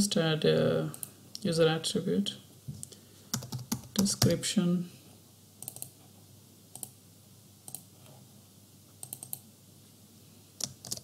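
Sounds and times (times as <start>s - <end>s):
faint room hiss: 0.0s - 11.0s
computer mouse clicks: 5.6s - 6.0s, 6.7s - 7.0s, 7.7s - 7.9s, 9.0s - 9.4s.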